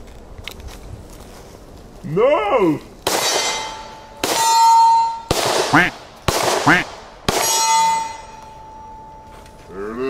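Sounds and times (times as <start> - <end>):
pistol shots: 3.0 - 8.3
steel target clanging: 3.1 - 9.5.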